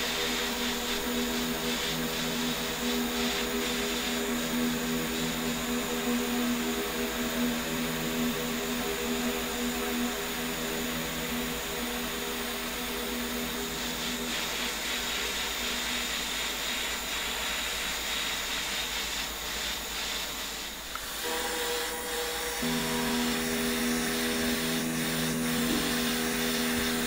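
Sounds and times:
blowtorch flame hissing: 0.0 - 27.0.

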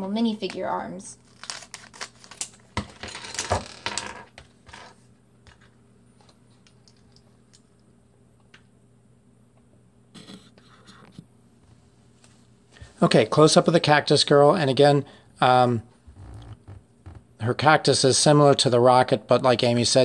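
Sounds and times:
scissors cutting foil bag: 1.2 - 2.6
foil bag crinkling: 1.2 - 3.8.

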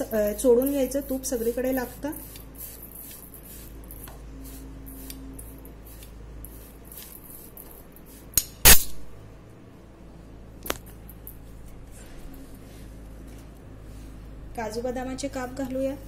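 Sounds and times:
hand rubbing coconut gritty rustle: 0.0 - 8.4.

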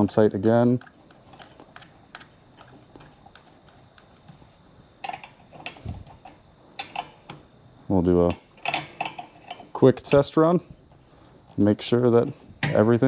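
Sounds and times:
metal wrench clinking on fittings: 8.3 - 10.3.

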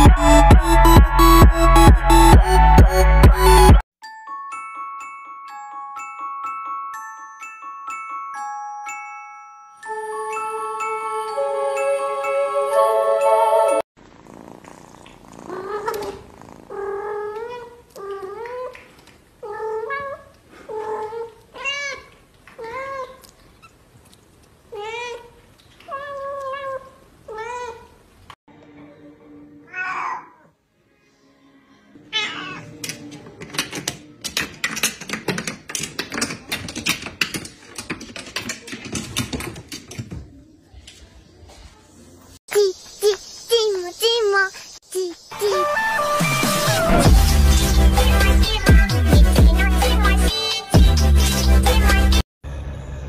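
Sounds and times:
kittens meowing: 32.2 - 32.7.

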